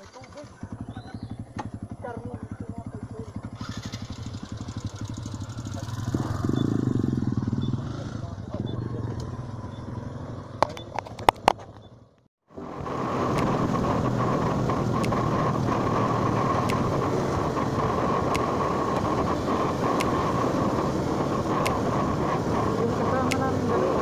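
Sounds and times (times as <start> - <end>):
motorcycle engine: 0.0 - 24.0
wind on microphone: 12.6 - 24.0.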